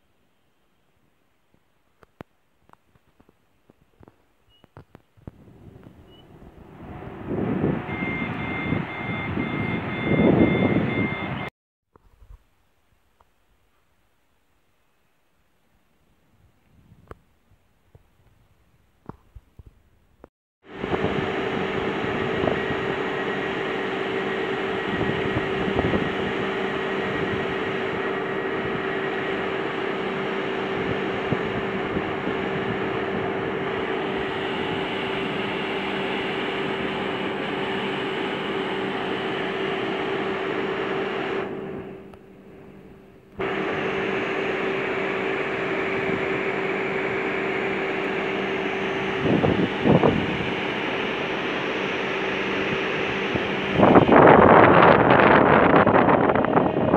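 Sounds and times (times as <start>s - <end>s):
electric train humming: 5.4s - 11.4s, 20.7s - 56.9s.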